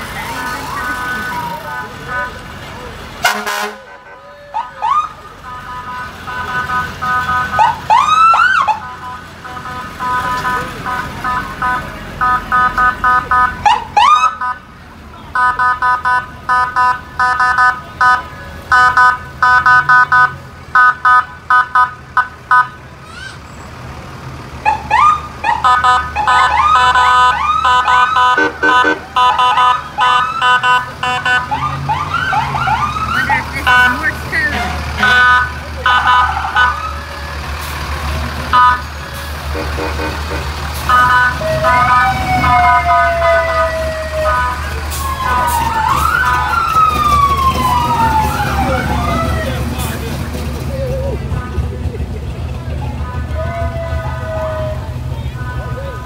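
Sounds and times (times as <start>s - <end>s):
fire truck sirens: 0.0s - 56.0s
rapid short horn blasts: 3.2s - 4.2s, 28.2s - 29.7s, 38.6s - 41.2s.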